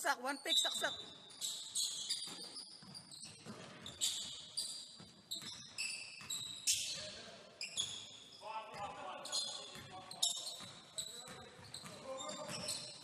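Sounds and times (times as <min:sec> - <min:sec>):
sneaker squeaks on hardwood: 0:00.3 - 0:13.0
basketball bouncing: 0:00.7 - 0:07.0, 0:09.7 - 0:13.0.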